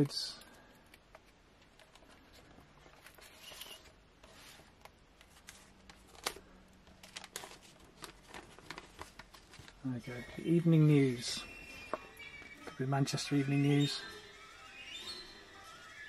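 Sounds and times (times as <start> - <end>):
paper page turning and rustling: 1.6 - 10.3
newspaper clippings crinkling: 2.8 - 10.4.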